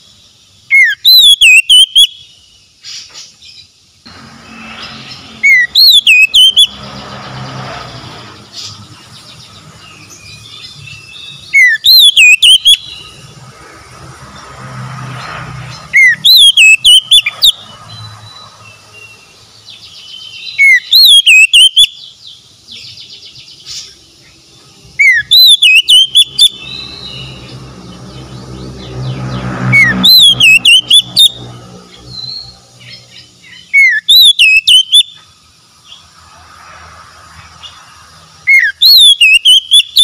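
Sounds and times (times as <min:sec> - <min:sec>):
bird singing whistled phrases: 0:00.7 - 0:02.4, 0:05.4 - 0:06.8, 0:10.2 - 0:13.1, 0:15.9 - 0:17.6, 0:20.0 - 0:22.1, 0:25.0 - 0:27.4, 0:29.8 - 0:31.4, 0:33.5 - 0:35.2, 0:38.5 - 0:40.0.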